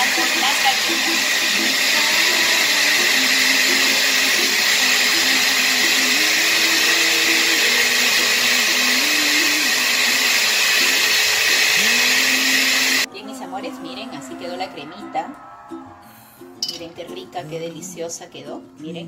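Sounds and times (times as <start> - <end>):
blender motor running: 0.0 - 13.1.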